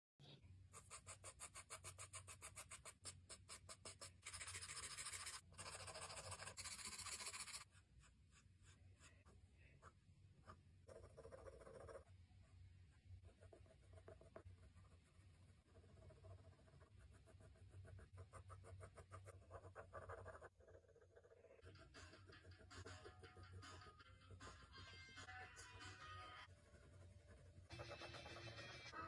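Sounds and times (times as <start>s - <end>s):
pencil scratching on paper: 0.7s - 12.1s, 12.9s - 24.6s, 26.4s - 29.0s
rubbing on paper: 0.8s - 9.3s.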